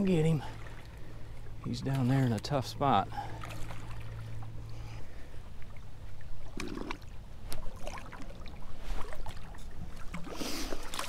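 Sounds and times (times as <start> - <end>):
water sloshing against bank: 0.0 - 11.0.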